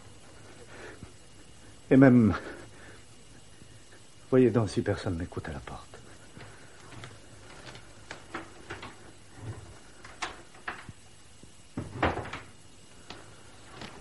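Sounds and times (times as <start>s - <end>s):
door being worked: 11.8s - 12.6s.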